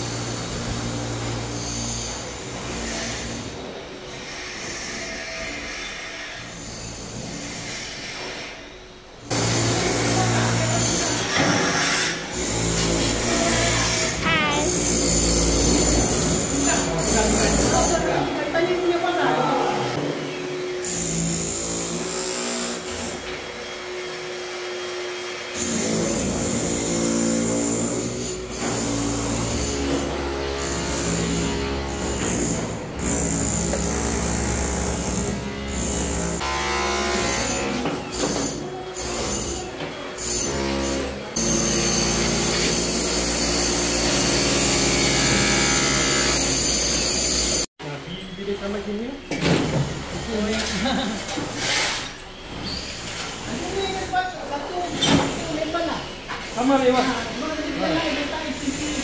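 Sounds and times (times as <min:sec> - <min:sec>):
electric demolition hammer chipping: 0:25.0 - 0:47.7.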